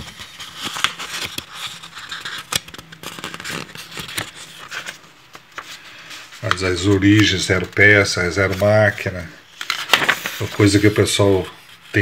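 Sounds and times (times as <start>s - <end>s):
book pages being turned: 0.0s - 12.0s.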